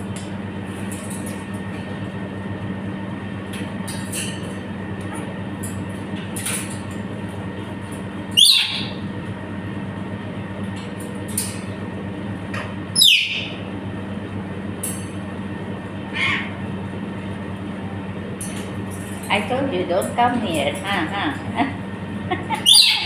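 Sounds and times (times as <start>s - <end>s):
steady low hum: 0.0s - 23.0s
parrot squawking: 8.4s - 9.0s, 13.0s - 13.6s, 16.1s - 16.6s, 22.5s - 23.0s.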